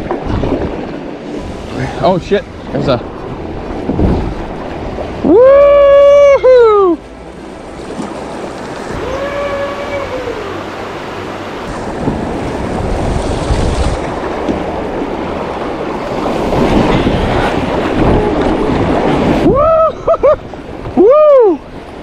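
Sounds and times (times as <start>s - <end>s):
whitewater rapids rushing: 1.3s - 20.1s.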